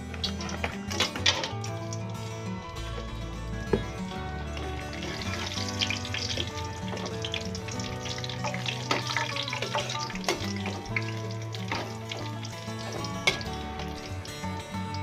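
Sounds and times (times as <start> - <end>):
crackers sizzling in hot oil: 0.0 - 2.2, 4.6 - 15.0
background music: 0.0 - 15.0
spatula stirring in wok: 4.6 - 14.5.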